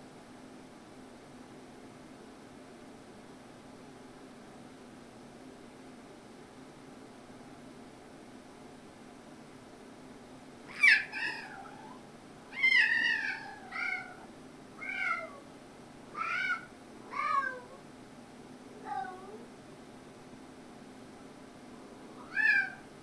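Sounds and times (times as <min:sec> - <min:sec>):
cat meowing: 0:10.7 - 0:15.4, 0:16.1 - 0:17.8, 0:18.8 - 0:19.4, 0:22.2 - 0:22.9.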